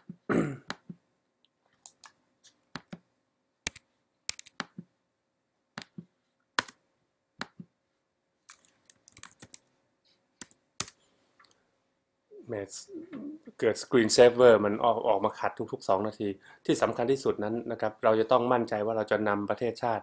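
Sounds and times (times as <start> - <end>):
person clearing throat: 0.3 - 0.7
keyboard and mouse clicks: 1.7 - 4.9, 5.7 - 6.8, 7.4 - 7.7, 8.5 - 9.7.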